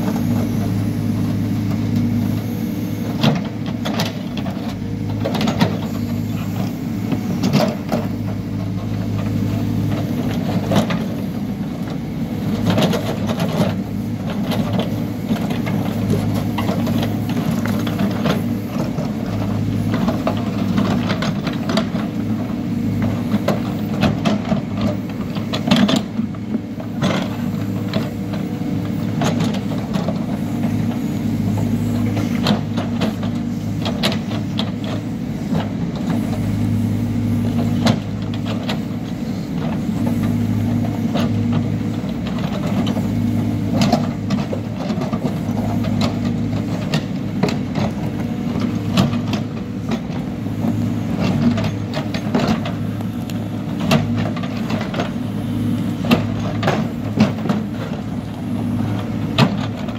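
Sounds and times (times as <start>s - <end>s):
diesel engine running under load: 0.0s - 59.9s.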